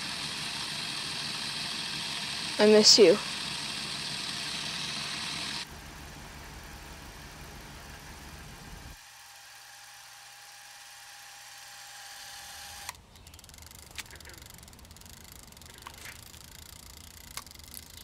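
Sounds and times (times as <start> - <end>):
film camera motor whirring: 0.0 - 5.7, 9.0 - 18.0.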